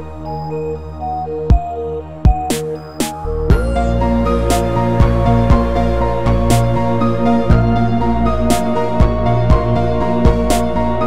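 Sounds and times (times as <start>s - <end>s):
held synth notes: 0.0s - 11.0s
deep bass: 3.2s - 11.0s.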